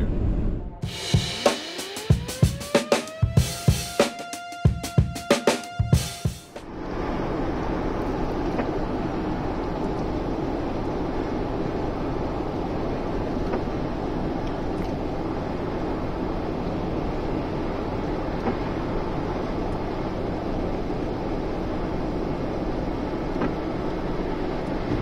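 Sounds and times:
car cabin road noise: 6.6 - 25.0.

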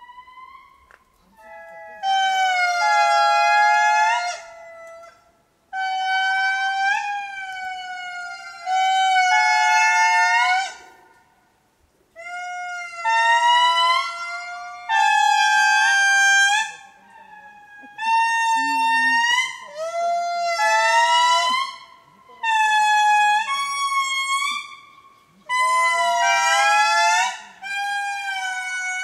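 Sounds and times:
lemurs wailing in chorus: 6.3 - 10.9, 12.2 - 29.0.

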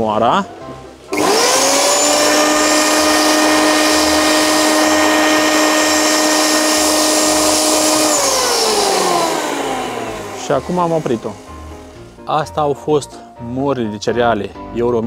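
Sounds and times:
grain mill motor whining: 1.1 - 12.2.

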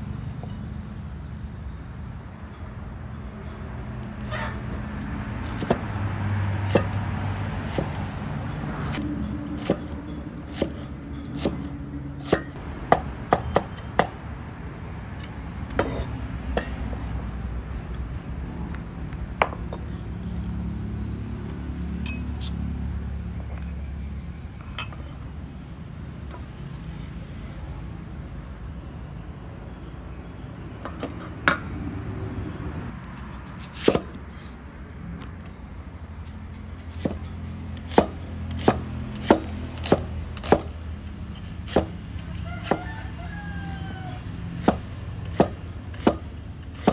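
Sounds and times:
knife chopping on wooden board: 33.6 - 34.2, 37.0 - 37.2, 37.9 - 40.7, 41.7 - 41.9, 44.6 - 46.9.

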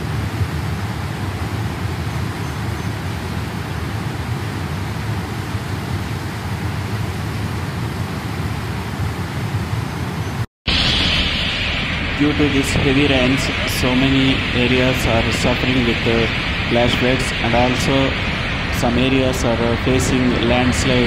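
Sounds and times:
floodwater rushing: 10.7 - 21.0.

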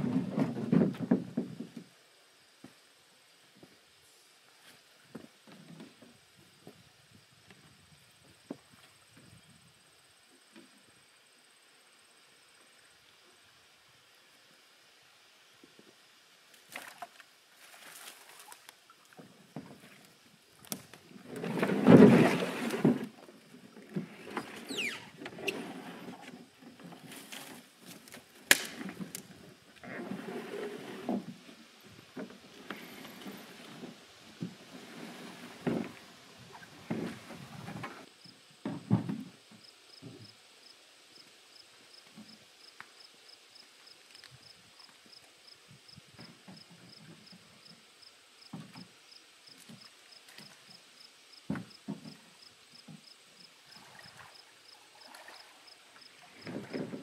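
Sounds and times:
canoe hull scraping on rocks: 21.2 - 23.2, 23.8 - 27.8, 28.9 - 31.6, 32.3 - 38.1, 56.3 - 57.0.

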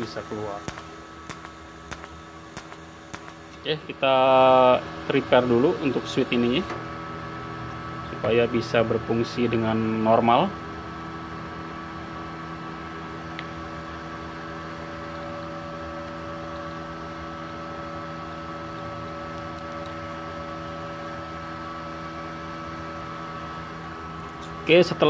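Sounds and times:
welder fan humming: 0.0 - 25.0.

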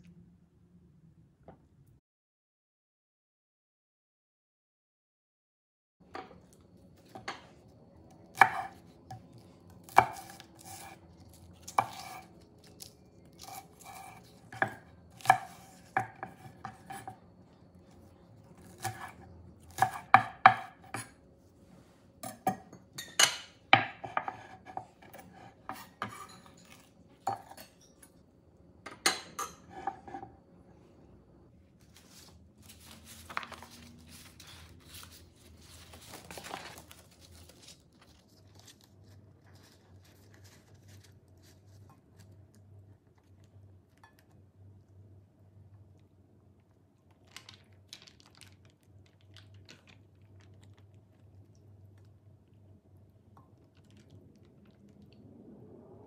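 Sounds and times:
knife chopping on wooden board: 8.4 - 8.7, 13.4 - 17.1, 18.7 - 21.1.

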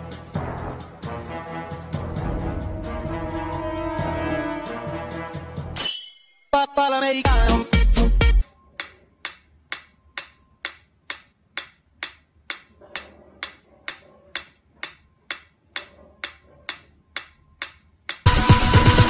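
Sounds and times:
metronome ticking: 8.7 - 18.4.

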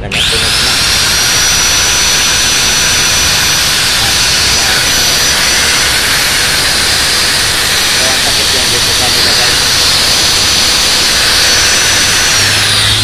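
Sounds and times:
angle grinder whining: 0.0 - 13.0.

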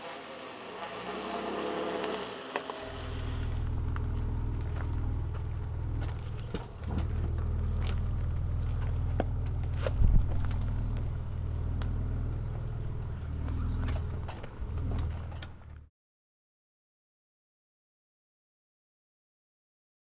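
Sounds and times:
pickup engine running at low revs: 0.5 - 15.9
stones crunching under tyres: 1.8 - 15.9.

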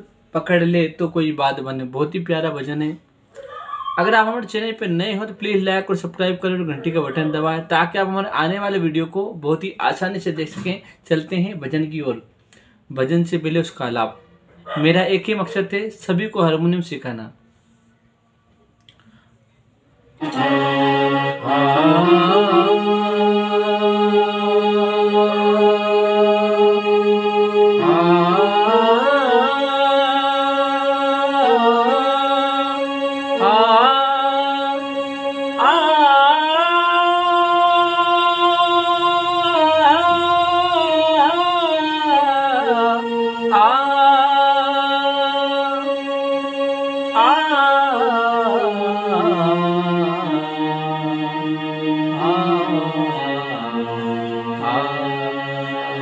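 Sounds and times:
person singing: 20.2 - 56.0.

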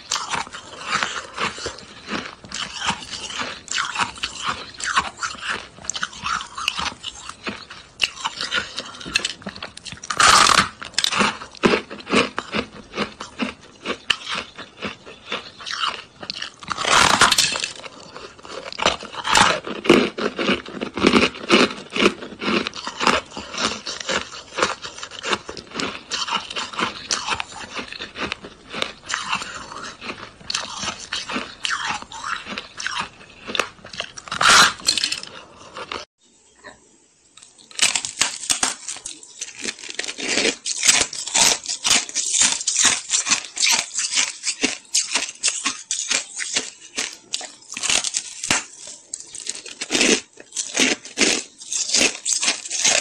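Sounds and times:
ice being crunched: 10.1 - 12.2, 13.8 - 21.6.

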